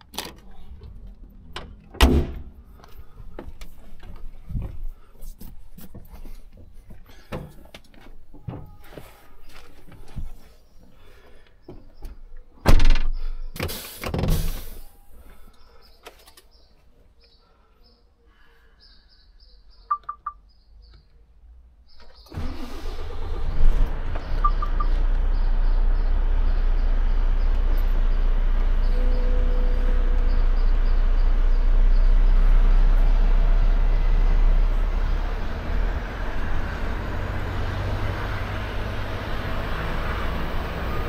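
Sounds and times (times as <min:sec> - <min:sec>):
diesel truck engine starting and idling: 0:00.0 - 0:04.2, 0:21.9 - 0:41.0
knocks and thumps in truck cab: 0:01.6 - 0:02.6, 0:12.6 - 0:13.1
short electronic beeps: 0:19.9 - 0:20.4, 0:24.3 - 0:25.0.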